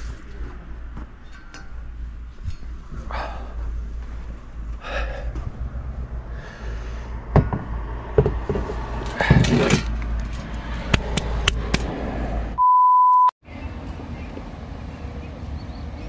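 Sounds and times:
pure steady beep: 12.6s - 13.4s.

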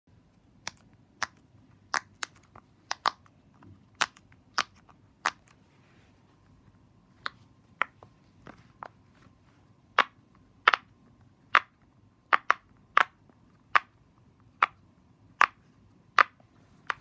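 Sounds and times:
fidget toy bubbles popping: 12.3s - 13.9s.

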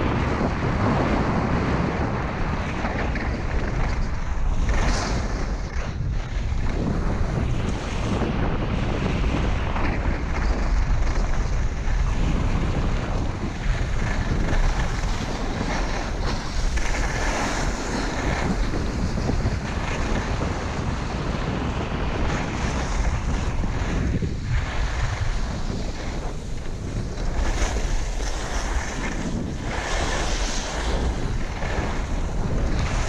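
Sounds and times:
skis sliding over snow: 0.0s - 33.0s
wind buffeting microphone: 0.0s - 33.0s.

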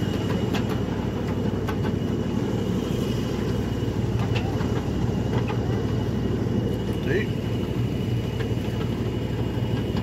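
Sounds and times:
light clicks of train: 0.0s - 2.0s, 3.4s - 5.9s, 8.3s - 10.0s.

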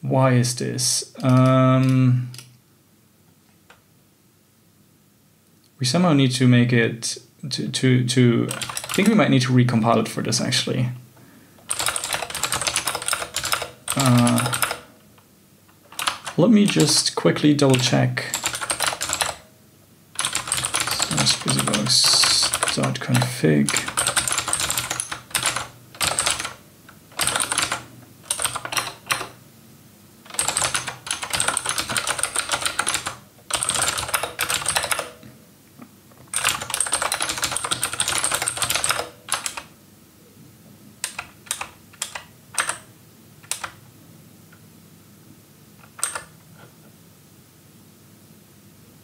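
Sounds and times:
typing on computer keyboard: 1.2s - 2.4s, 8.5s - 9.2s, 11.7s - 14.9s, 15.9s - 17.0s, 17.7s - 19.4s, 20.2s - 29.4s, 30.3s - 35.2s, 36.3s - 39.7s, 41.0s - 43.8s, 45.8s - 46.3s.

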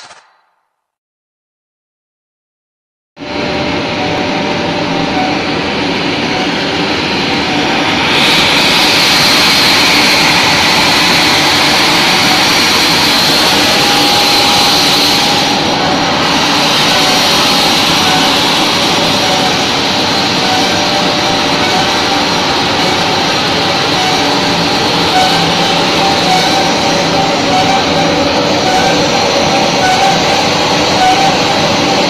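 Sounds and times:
grinding mill whirring: 3.2s - 32.0s.

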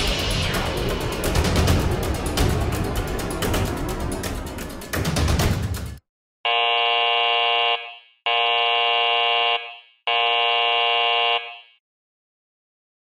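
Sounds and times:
warning buzzer: 6.5s - 11.8s.

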